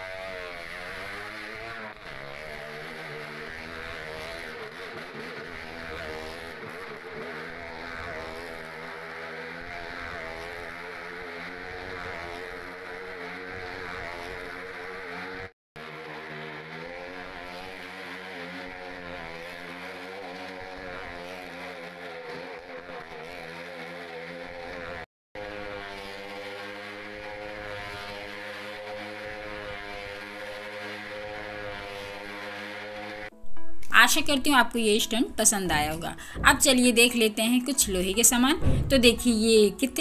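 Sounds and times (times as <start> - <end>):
motorcycle engine at high revs: 0.0 - 33.3, 35.6 - 40.0.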